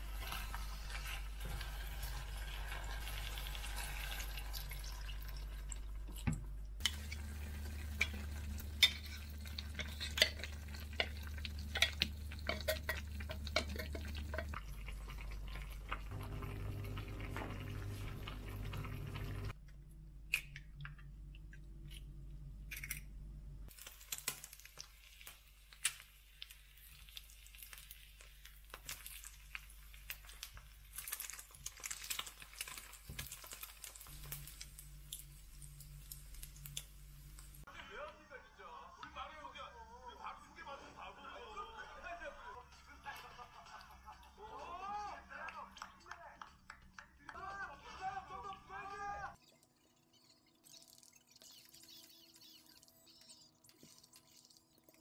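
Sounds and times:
utensils and dishes clinking: 6.8s - 19.5s.

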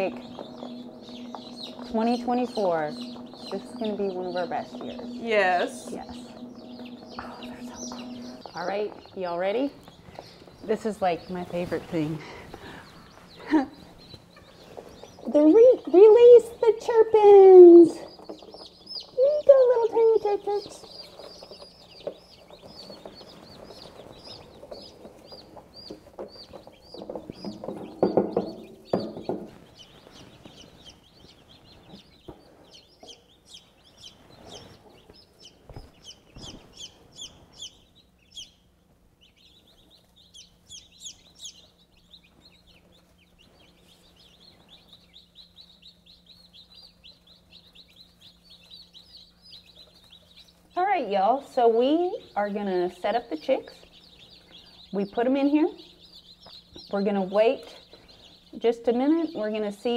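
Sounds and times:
louder lower noise: 0.0s - 9.0s
chicks peeping: 0.0s - 59.9s.

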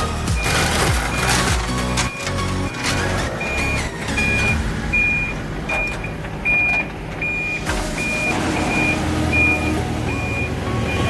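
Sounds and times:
truck engine running: 0.0s - 11.0s
truck warning beeper: 0.2s - 11.0s.

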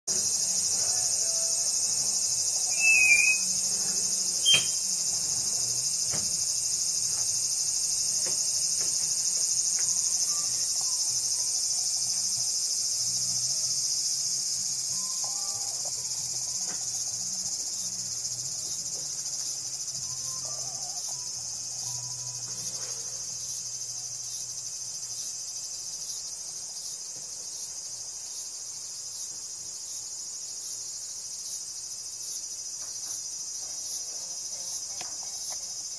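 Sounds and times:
insects singing: 0.1s - 35.9s
regular chirp: 2.6s - 3.6s, 4.4s - 4.9s.

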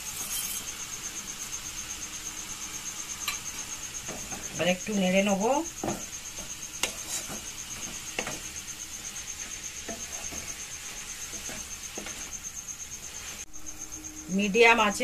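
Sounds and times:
spatula scraping a wok: 0.0s - 1.0s, 3.1s - 13.5s.

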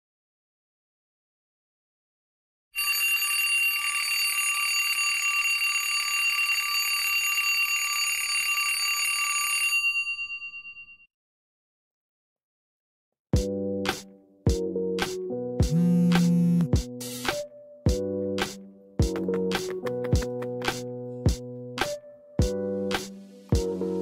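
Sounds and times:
alarm clock bell ringing: 2.8s - 11.1s.

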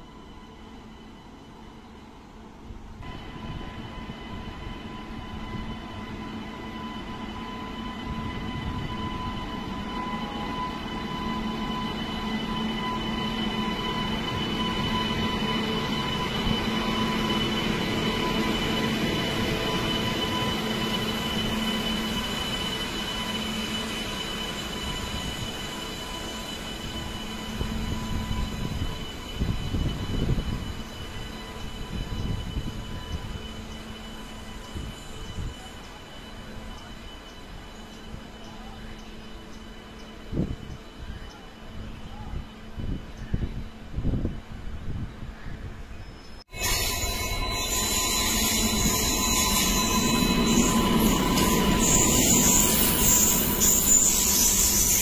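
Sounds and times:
locomotive whine: 0.0s - 55.0s.

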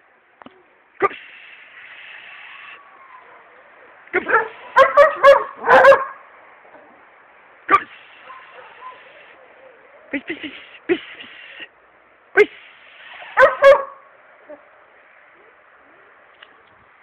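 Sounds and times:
dog barking: 4.2s - 6.2s, 7.7s - 9.4s, 13.3s - 14.0s.

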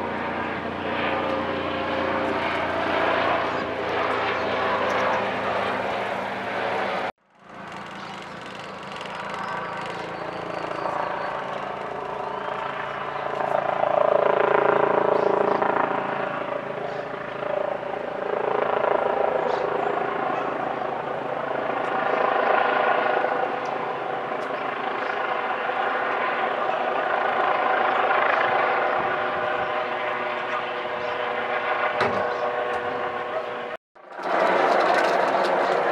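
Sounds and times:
helicopter flying overhead: 0.0s - 35.9s.

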